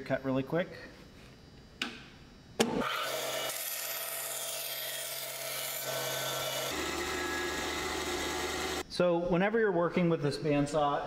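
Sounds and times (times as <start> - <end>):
bandsaw motor hum: 2.6 - 8.8.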